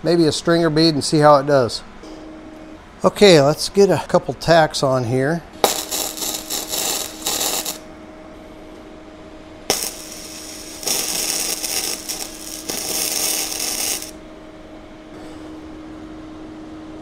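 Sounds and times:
low steady hum: 0.0s - 17.0s
welding arc crackling: 5.6s - 7.8s, 9.7s - 14.2s.

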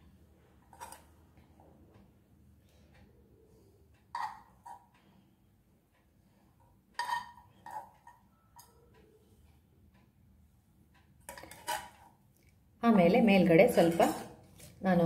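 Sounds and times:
metal spoon clinking on dishes: 4.1s - 4.9s, 7.0s - 8.8s, 11.3s - 12.0s, 13.7s - 14.4s.

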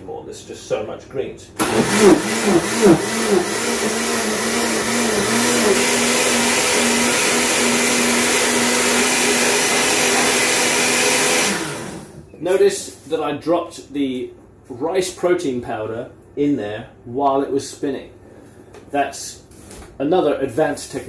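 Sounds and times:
blender motor whirring: 1.6s - 12.3s.

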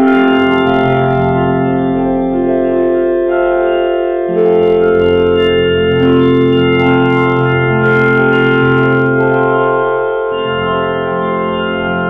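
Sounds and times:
electronic organ-like voice chords: 0.0s - 12.0s.

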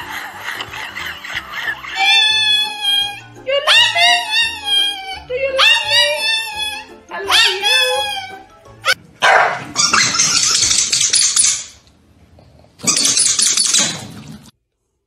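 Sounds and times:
dogs snarling and barking: 8.8s - 11.1s.

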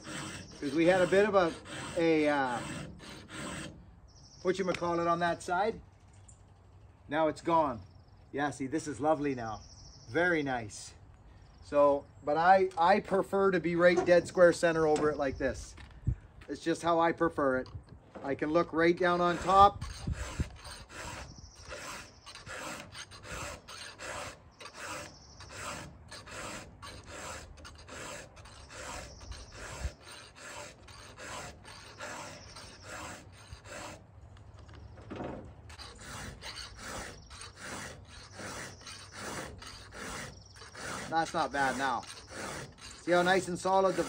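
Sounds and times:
file rasping on chainsaw chain: 0.0s - 3.8s, 19.0s - 34.0s, 35.7s - 44.0s.

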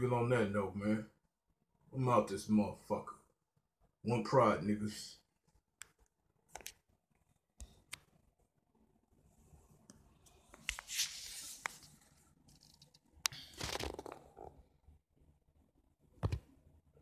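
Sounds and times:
device handling clicks and taps: 5.8s - 6.8s.

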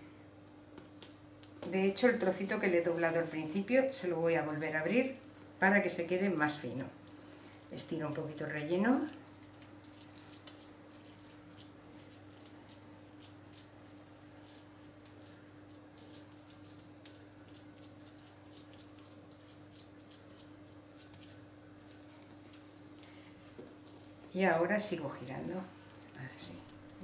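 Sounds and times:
steady low hum: 0.0s - 27.0s
hands pressing sticky minced meat: 7.0s - 27.0s.

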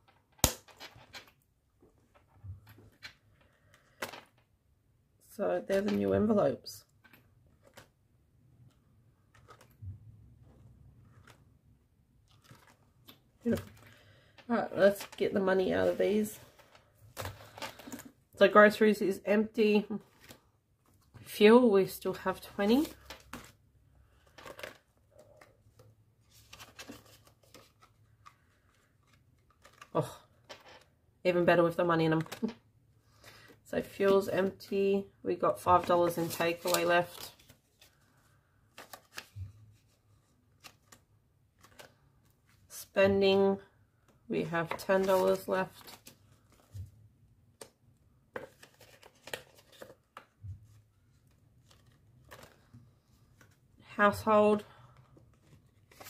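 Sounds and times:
plastic banknotes rustling: 9.2s - 9.8s, 12.2s - 18.2s, 22.1s - 30.9s, 35.6s - 42.7s, 44.5s - 46.8s, 48.3s - 53.6s, 54.7s - 56.0s.

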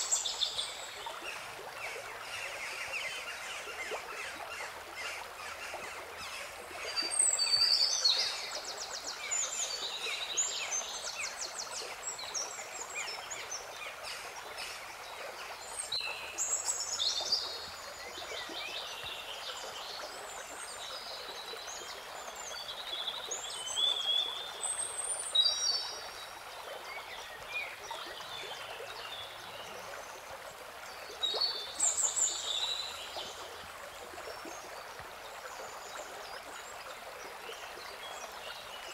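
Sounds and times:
flowing stream: 0.0s - 38.9s.

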